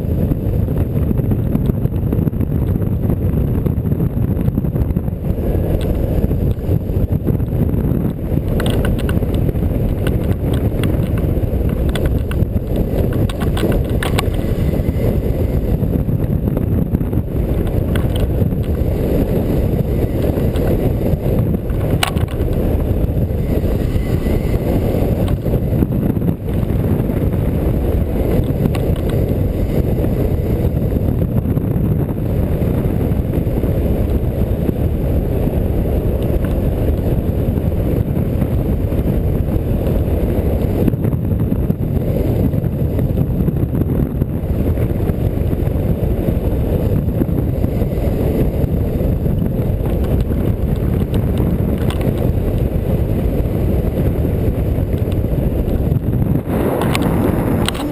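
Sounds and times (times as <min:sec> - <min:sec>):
wind buffeting microphone: 0:00.0 - 0:57.9.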